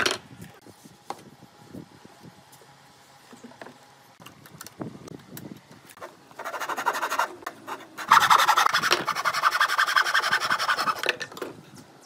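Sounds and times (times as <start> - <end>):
handsaw cutting through wood: 6.4 - 11.1.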